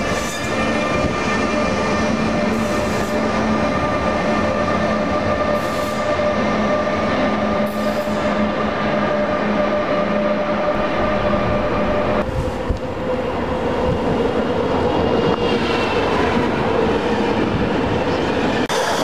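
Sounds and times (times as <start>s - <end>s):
electric locomotive whine and drone: 0.0s - 19.0s.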